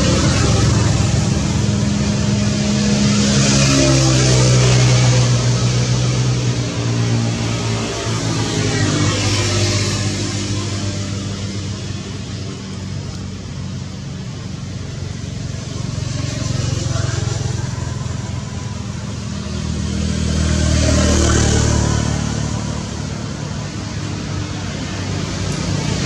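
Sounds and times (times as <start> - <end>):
vehicle engine humming: 0.0 - 26.0.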